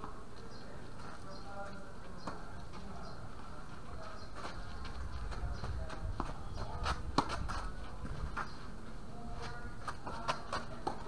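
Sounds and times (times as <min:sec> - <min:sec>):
tennis racket hitting ball: 0:06.2 - 0:07.7.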